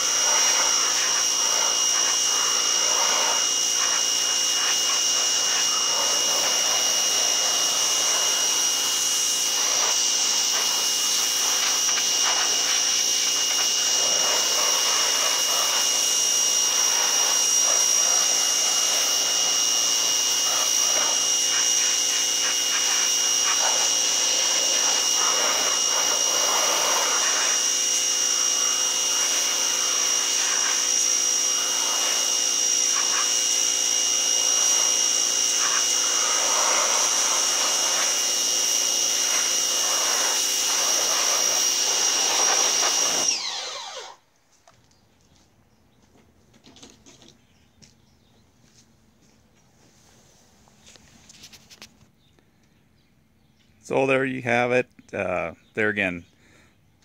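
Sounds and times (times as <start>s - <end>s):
water jet spraying: 0.0s - 43.3s
pressure washer motor whine: 0.0s - 44.3s.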